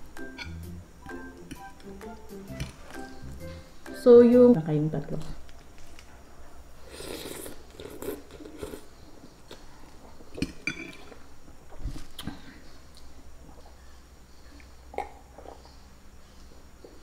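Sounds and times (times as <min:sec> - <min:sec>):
person slurping noodles: 0:06.9 - 0:08.9.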